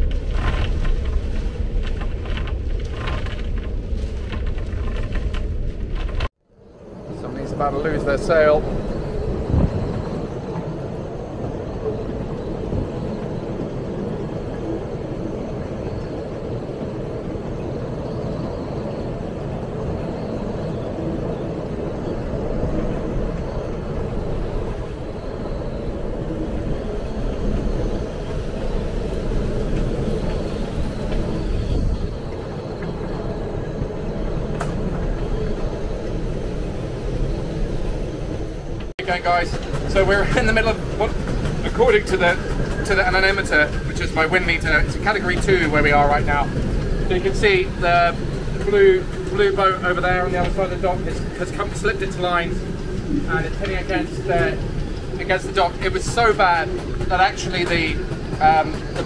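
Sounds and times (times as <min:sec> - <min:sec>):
strong wind rushing: 0:00.0 - 0:59.0
heavy driving rain: 0:38.8 - 0:59.0.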